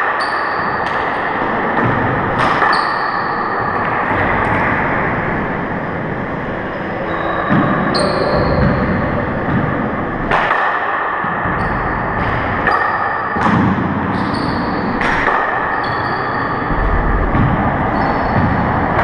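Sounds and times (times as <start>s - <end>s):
sneakers squeaking on floor: 0.0s - 1.2s, 1.8s - 3.9s, 6.7s - 9.8s, 11.5s - 19.0s.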